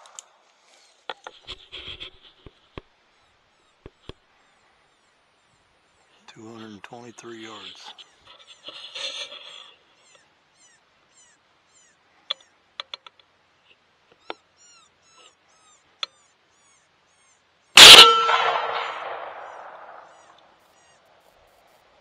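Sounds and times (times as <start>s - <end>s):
rifle shot: 17.8s - 20.2s.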